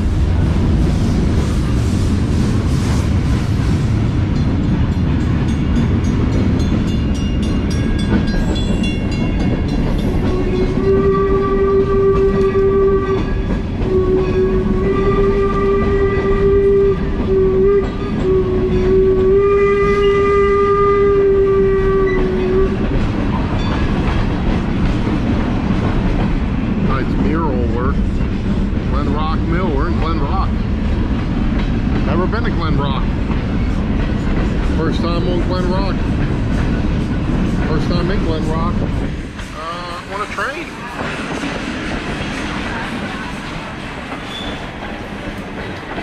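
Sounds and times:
locomotive whistle blasts: 10.2 - 22.8.

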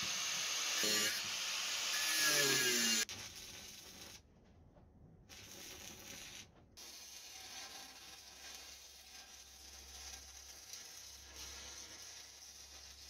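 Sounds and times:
welding arc crackling: 5.3 - 13.0.

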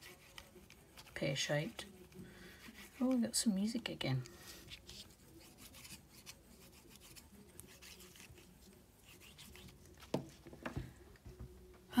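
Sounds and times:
shell rubbing on paper: 4.3 - 9.9.

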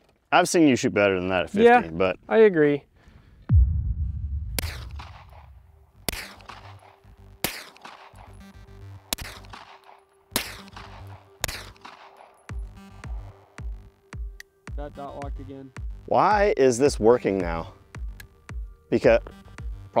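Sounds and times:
deep falling bass hit: 3.5 - 6.1
pulsing bass beat: 3.5 - 6.6, 12.5 - 19.9
gunshots ringing out: 4.4 - 8.4, 9.1 - 12.4.

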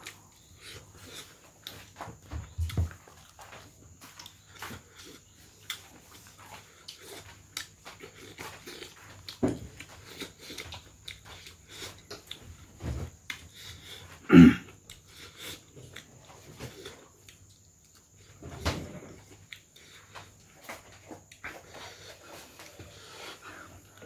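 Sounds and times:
chewing and lip smacking: 2.6 - 12.6, 14.7 - 18.4.

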